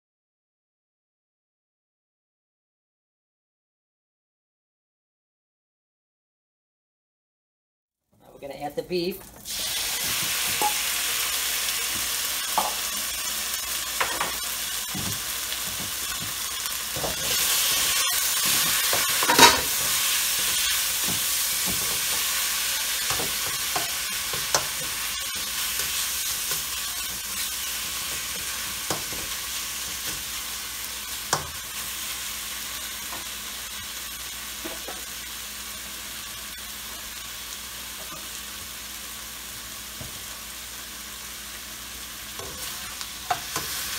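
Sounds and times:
beef sizzling in hot oil: 9.4 - 43.9
metal spatula scraping a wok: 17.0 - 29.3.

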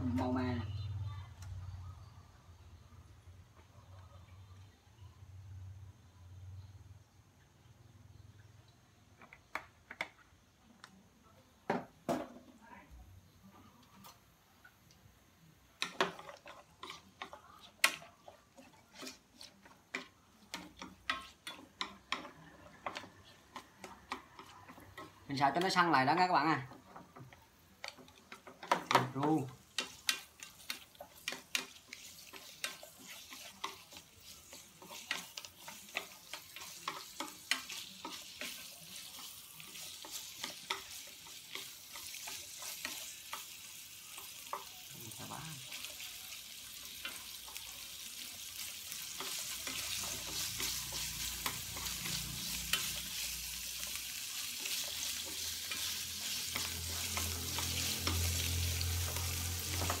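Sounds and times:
meat sizzling in a frying pan: 15.7 - 60.0
chopsticks tapping and scraping pan: 15.8 - 60.0.

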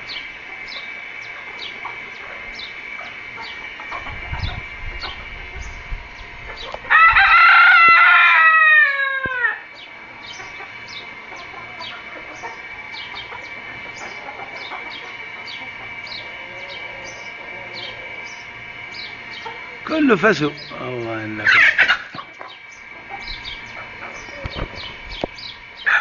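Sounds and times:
rooster crowing: 6.8 - 9.8, 11.3 - 18.5, 25.8 - 26.0
steady high tone: 16.0 - 21.6.

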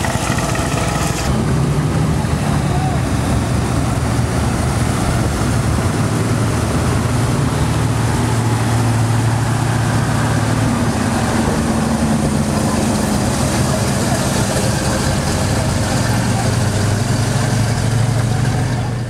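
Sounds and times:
truck engine running: 0.0 - 19.0.

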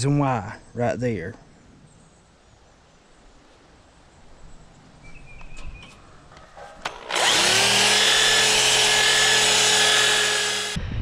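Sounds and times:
wire wheel scouring steel: 6.6 - 10.8
electric drill with wire wheel: 6.8 - 10.8.

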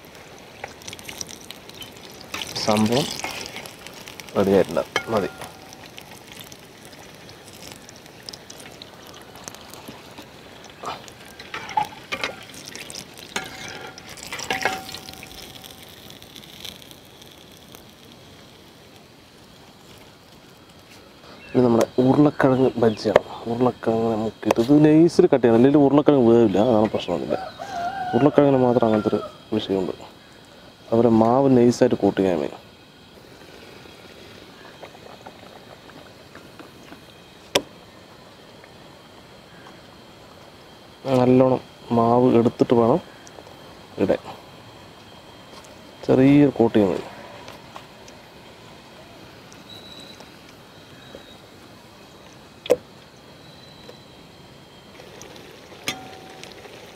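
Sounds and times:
hot oil sizzling: 0.0 - 56.9
skimmer clinking against pot: 4.7 - 5.8, 10.7 - 15.9, 55.8 - 56.7.

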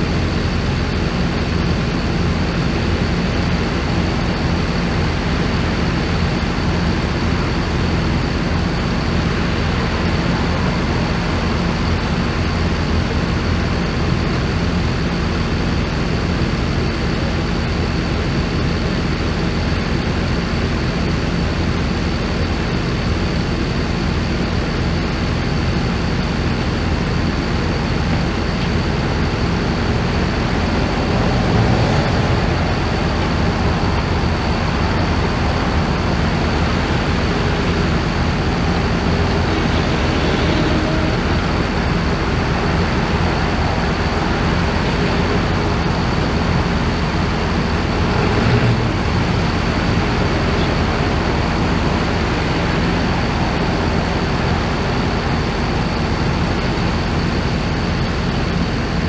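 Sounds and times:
vehicle engine running: 0.0 - 59.0
thin high-pitched whine: 27.7 - 46.7.

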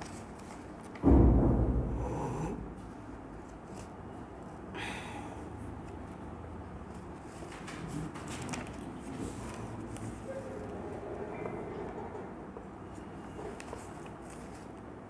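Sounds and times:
heavy breath close to microphone: 4.8 - 5.6.

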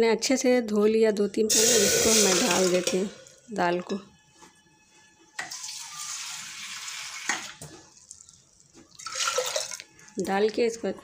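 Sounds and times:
water pouring: 1.5 - 3.1, 5.4 - 9.9.

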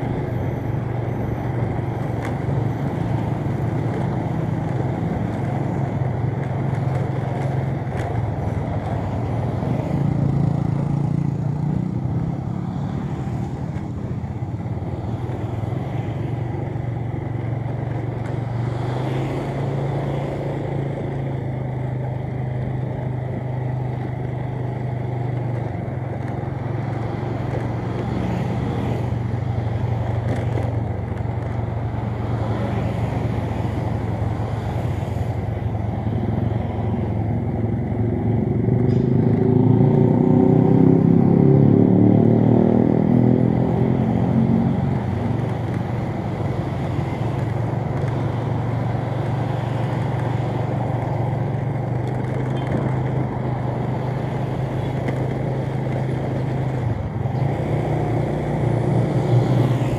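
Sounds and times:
traffic noise: 0.0 - 59.9.

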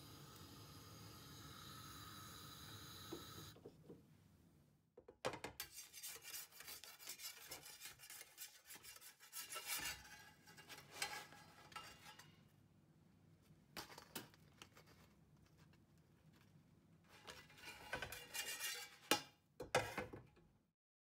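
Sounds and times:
metal knife scraping metal: 5.6 - 12.4, 17.4 - 19.3.

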